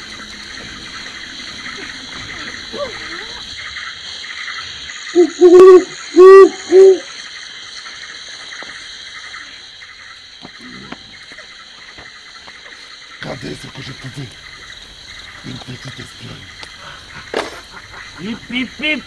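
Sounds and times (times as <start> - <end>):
night ambience hiss: 0.0 - 19.0
owl hooting: 5.1 - 7.1.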